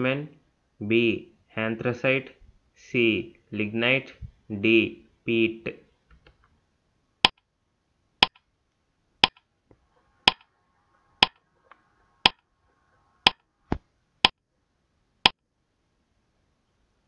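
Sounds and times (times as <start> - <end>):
timer ticking: 8.2 - 8.4, 9.2 - 9.4, 10.3 - 10.5, 11.2 - 11.4, 13.2 - 13.4.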